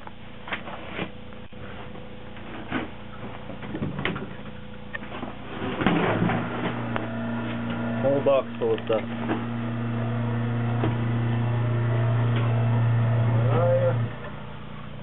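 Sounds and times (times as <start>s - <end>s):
motor humming: 3.1s - 15.0s.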